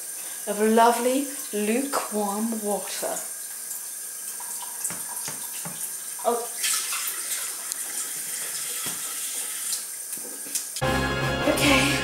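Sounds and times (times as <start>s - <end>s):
tap running water into jug: 3.4s - 10.8s.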